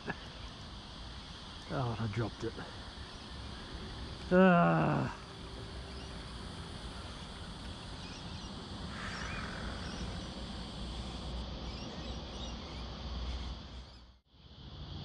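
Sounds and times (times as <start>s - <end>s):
faint bird chirps: 5.8s - 14.2s.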